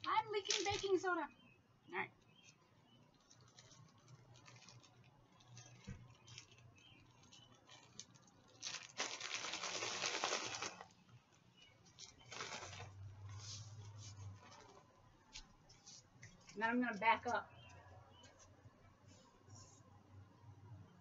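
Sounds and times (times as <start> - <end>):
plastic bag crinkling: 0.1 - 1.2, 2.4 - 15.0
bag shaken with sloshing liquid: 7.8 - 10.8, 12.2 - 13.0.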